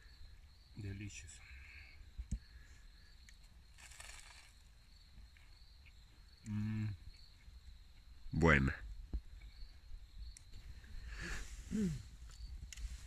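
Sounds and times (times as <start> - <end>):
crickets trilling: 0.0 - 13.0
man humming mm: 6.4 - 7.0, 11.2 - 12.1
soft rustle: 10.5 - 13.0.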